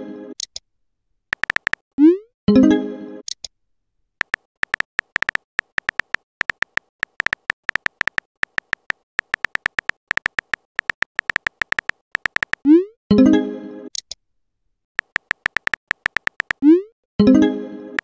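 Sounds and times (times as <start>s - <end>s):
keyboard tapping sound effect: 1.3s - 2.1s, 4.2s - 12.8s, 15.0s - 16.8s.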